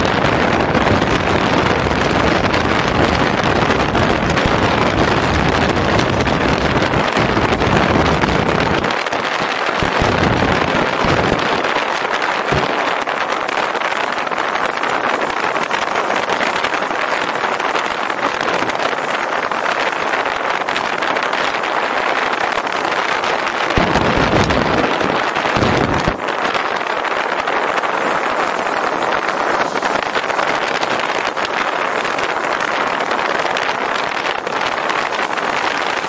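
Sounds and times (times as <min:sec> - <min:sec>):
motorcycle road noise: 0:00.0 - 0:14.0
wind rush on microphone: 0:00.0 - 0:36.0.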